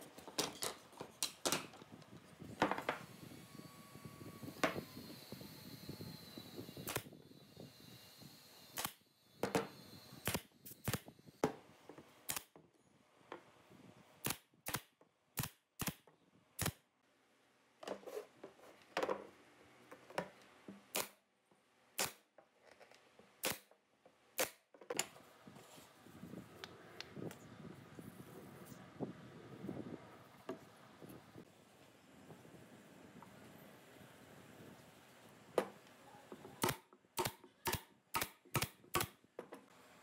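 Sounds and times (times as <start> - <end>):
nail gun firing into wood: 6.8 - 7.1, 8.7 - 11.6, 12.3 - 12.6, 14.2 - 16.8, 20.9 - 21.2, 22.0 - 22.3, 23.4 - 23.7, 24.4 - 24.6, 36.6 - 39.2.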